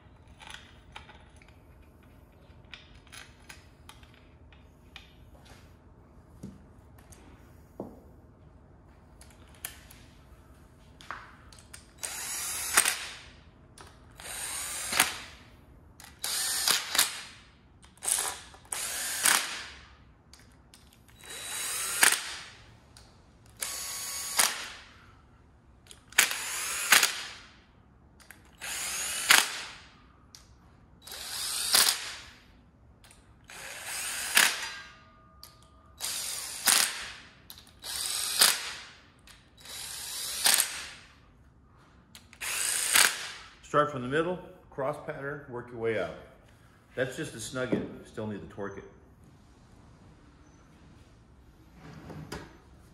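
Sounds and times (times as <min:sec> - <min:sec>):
cordless drill whining: 0:12.0 - 0:13.1, 0:14.2 - 0:15.2, 0:16.0 - 0:17.1, 0:18.0 - 0:19.6, 0:21.1 - 0:22.4, 0:23.6 - 0:24.7, 0:26.2 - 0:27.2, 0:28.5 - 0:29.8, 0:31.0 - 0:32.1, 0:33.5 - 0:34.9, 0:36.0 - 0:37.0, 0:37.8 - 0:38.7, 0:39.6 - 0:40.9, 0:42.4 - 0:43.2.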